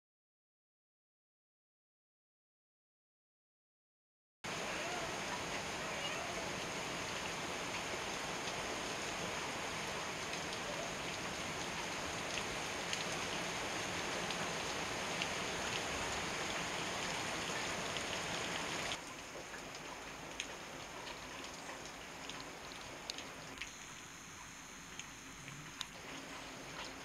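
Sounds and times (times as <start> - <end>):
heavy rain hissing: 4.5 - 19.3, 19.9 - 27.0.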